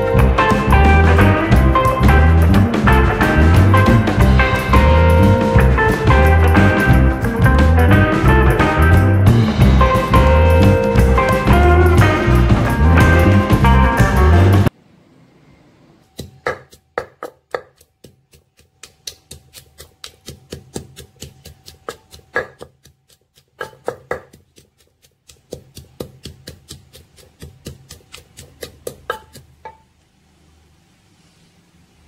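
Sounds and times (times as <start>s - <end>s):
wooden pestle pounding in mortar: 16.2s - 29.8s.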